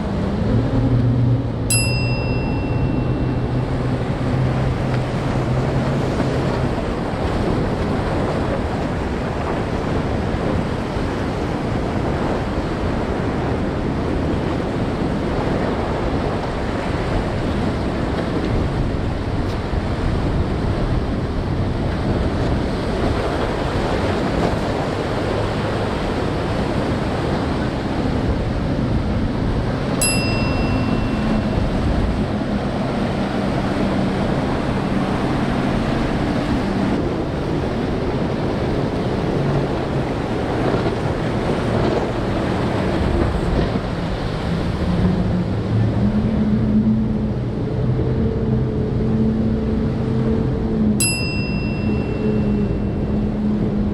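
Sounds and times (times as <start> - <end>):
outboard motors droning: 0.0 - 53.9
surf and wind rushing: 0.0 - 53.9
bright chime: 1.7 - 4.1, 30.0 - 32.3, 51.0 - 53.2.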